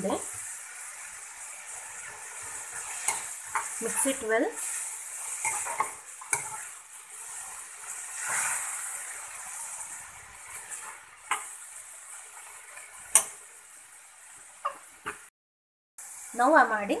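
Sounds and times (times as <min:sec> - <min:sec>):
vegetables sizzling in a pan: 0:00.0 - 0:15.3, 0:16.0 - 0:17.0
metal ladle scraping pan: 0:02.4 - 0:06.8.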